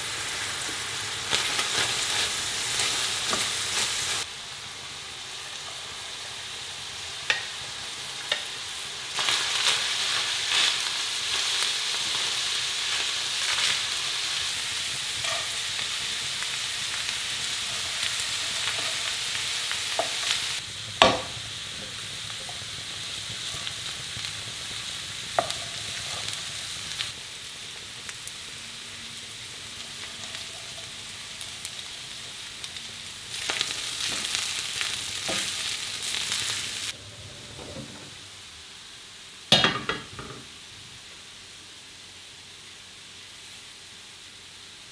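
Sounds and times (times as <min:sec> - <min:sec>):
food sizzling in a frying pan: 0:00.0 - 0:44.9
utensil knocking on pan: 0:21.0 - 0:21.3.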